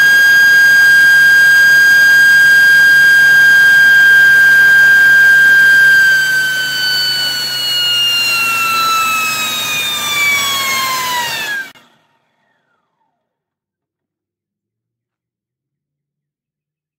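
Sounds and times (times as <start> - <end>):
turbine whining: 0.0 - 11.8.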